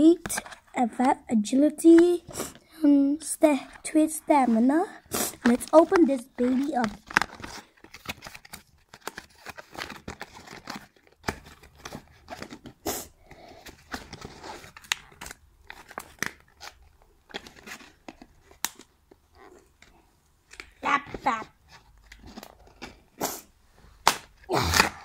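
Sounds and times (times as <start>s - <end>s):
cardboard packaging tearing: 5.1s - 13.1s.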